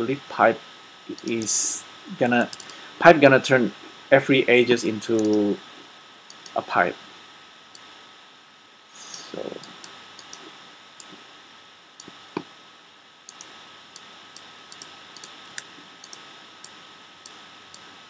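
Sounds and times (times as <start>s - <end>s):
faint steady hiss: 0.0s - 18.0s
thin high hum: 0.0s - 18.0s
computer mouse and keyboard clicks: 1.1s - 1.6s, 2.4s - 2.8s, 5.1s - 5.4s, 6.3s - 6.6s, 9.1s - 11.2s, 13.3s - 17.9s.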